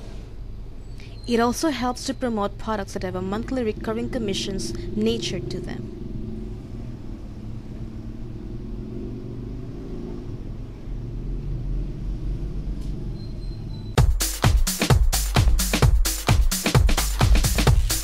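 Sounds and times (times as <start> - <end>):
low rumble: 3.0 - 13.2
electronic dance music: 14.0 - 18.0.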